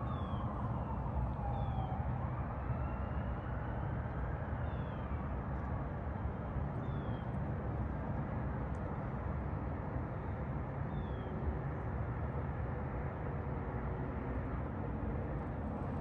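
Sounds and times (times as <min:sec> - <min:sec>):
steady low rumble: 0:14.6 - 0:16.0.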